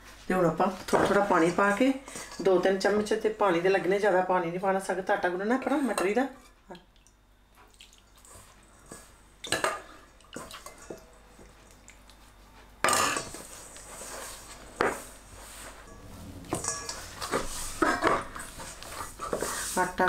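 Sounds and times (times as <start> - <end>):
water spooned in: 6.7 - 8.5
dough mixed by hand: 10.4 - 20.0
utensils clinking against bowl: 12.8 - 13.8, 15.7 - 19.6.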